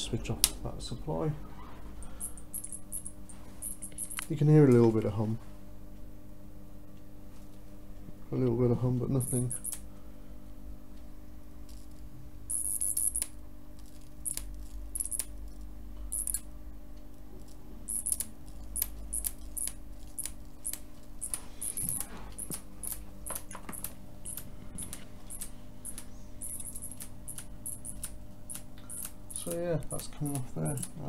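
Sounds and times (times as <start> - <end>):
electric arc crackling: 9.1 - 9.9, 11.7 - 16.6, 17.4 - 31.0
transformer hum: 11.6 - 31.0.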